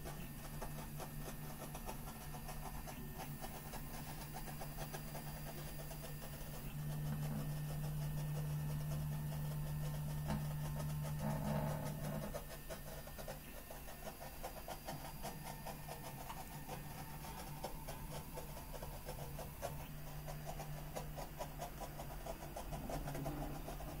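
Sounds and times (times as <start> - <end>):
stepper motors humming and buzzing: 0.0 - 24.0.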